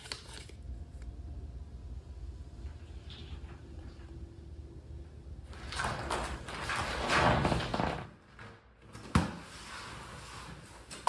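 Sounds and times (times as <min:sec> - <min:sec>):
sliding rustling noise: 0:09.4 - 0:11.0.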